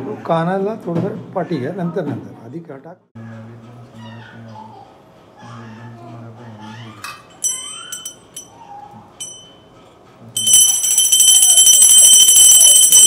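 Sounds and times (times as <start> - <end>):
hand bell ringing: 7.4 - 8.5, 9.2 - 9.7, 10.4 - 13.0.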